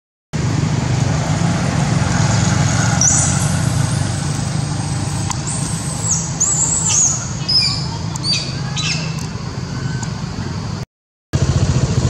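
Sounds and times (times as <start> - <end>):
engine humming: 0.4 - 10.8, 11.4 - 12.0
high bird chirps: 2.9 - 4.1, 5.0 - 10.1.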